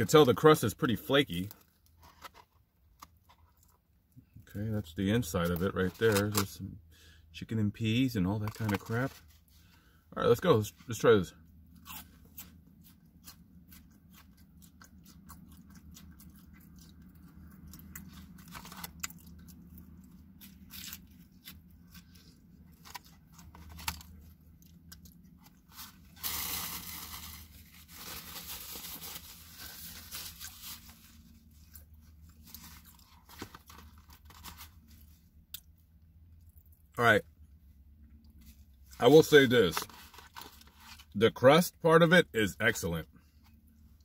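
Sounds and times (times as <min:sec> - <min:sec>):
low steady hum: 0:00.0 - 0:44.0
chewing crunchy pastry: 0:01.0 - 0:04.6, 0:11.6 - 0:26.2, 0:29.2 - 0:37.0.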